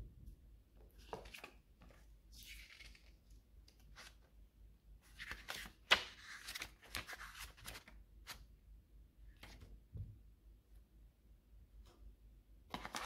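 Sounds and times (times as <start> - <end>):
paper pages rustling: 1.0 - 4.2, 5.1 - 8.4, 12.7 - 13.0
paper snap: 5.2 - 7.8.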